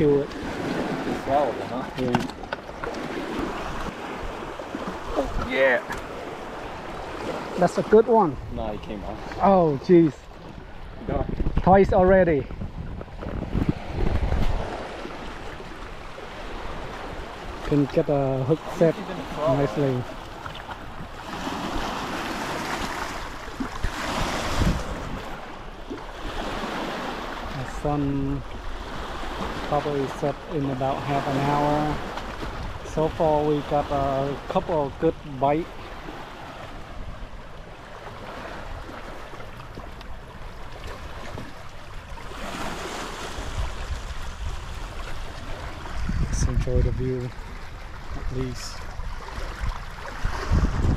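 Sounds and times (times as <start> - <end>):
lake waves washing on shore: 0.0 - 50.9
wind buffeting microphone: 8.2 - 26.9, 42.7 - 50.9.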